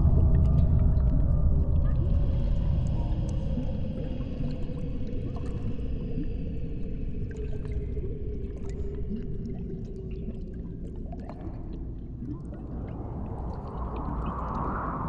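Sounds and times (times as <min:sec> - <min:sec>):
low rumbling drone: 0:00.0 - 0:06.3.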